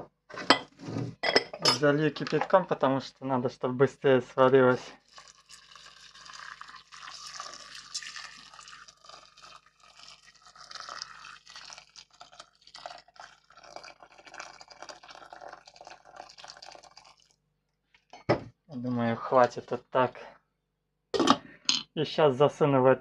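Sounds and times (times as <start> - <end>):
boiling water pouring into a pot: 4.6 - 17.4.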